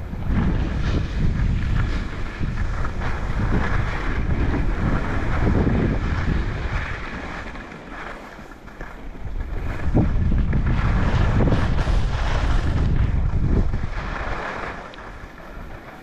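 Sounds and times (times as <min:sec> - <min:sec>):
wind buffeting microphone: 0:00.0 - 0:16.0
hiss of sliding over snow: 0:10.6 - 0:16.0.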